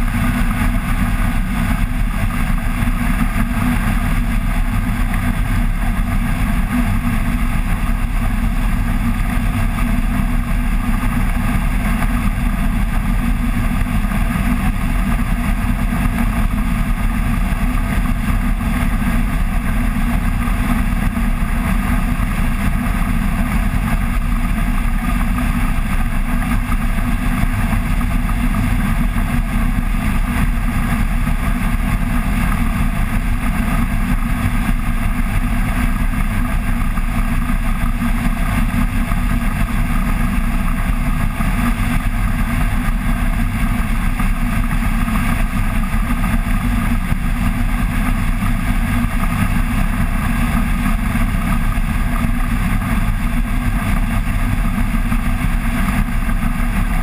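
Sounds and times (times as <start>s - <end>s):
aircraft engine and propeller: 0.0s - 57.0s
low rush of wind: 0.0s - 57.0s.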